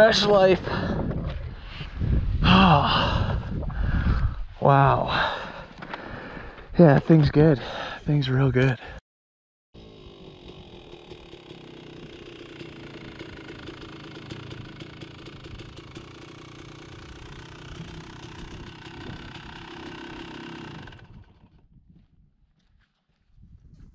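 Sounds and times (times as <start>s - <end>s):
two-stroke motorcycle engine running: 9.8s - 21.7s.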